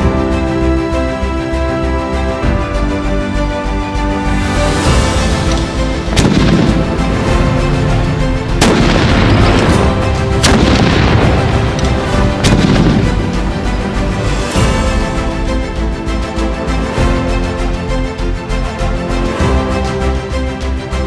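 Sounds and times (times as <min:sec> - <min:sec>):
background music: 0:00.0 - 0:21.0
cannon blasts: 0:06.1 - 0:07.6, 0:08.6 - 0:13.6.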